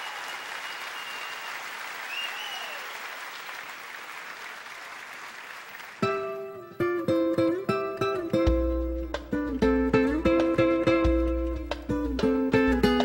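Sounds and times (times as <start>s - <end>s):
audience cheering: 0.0s - 6.1s
audience applauding: 0.0s - 6.6s
plucked music notes: 6.0s - 13.0s.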